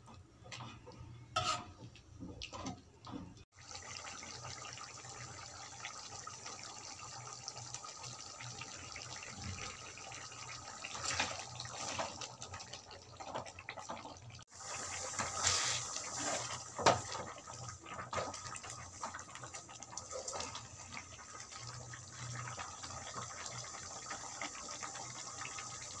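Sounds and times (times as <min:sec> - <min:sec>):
gravy bubbling in a pot: 0:00.5 - 0:26.0
spoon scraping a metal pot: 0:01.3 - 0:01.9.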